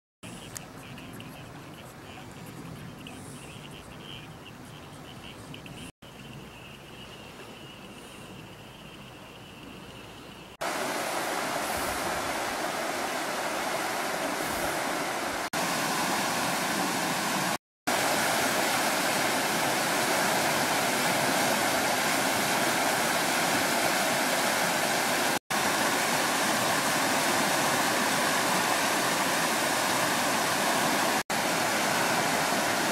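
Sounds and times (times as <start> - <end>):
river water rushing over rapids: 10.6 - 32.9.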